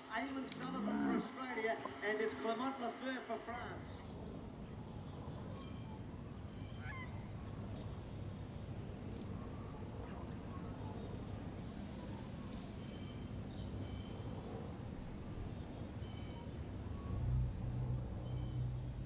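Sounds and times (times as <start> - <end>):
small birds chirping: 0.0 - 8.0.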